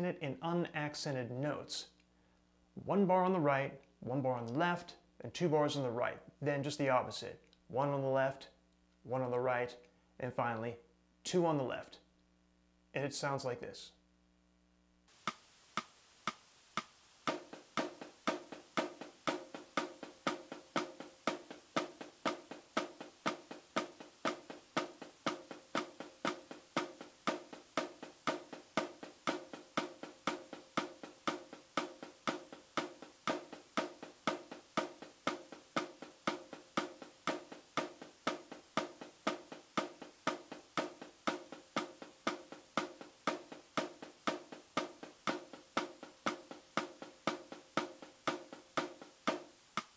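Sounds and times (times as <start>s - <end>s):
snare drum played with sticks: 15.2s - 49.9s.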